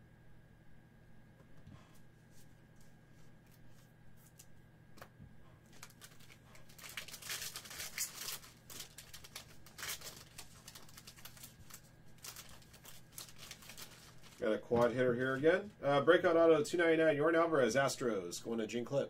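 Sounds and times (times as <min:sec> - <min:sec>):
low steady hum: 0:00.0 - 0:19.0
cards clicking and rustling: 0:05.7 - 0:14.9
card packs crinkling: 0:05.7 - 0:15.7.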